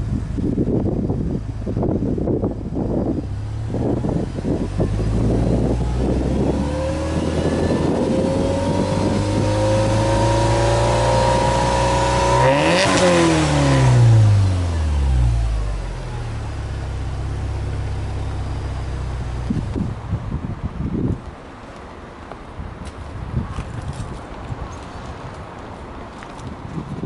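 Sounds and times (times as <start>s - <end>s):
car engine revving and idling: 0.0s - 20.1s.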